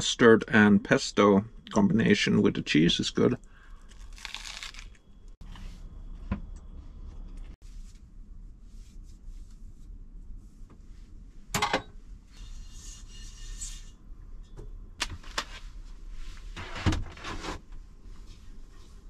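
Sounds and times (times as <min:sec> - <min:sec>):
low steady hum: 0:00.0 - 0:19.0
dishes clattering: 0:11.6 - 0:12.0.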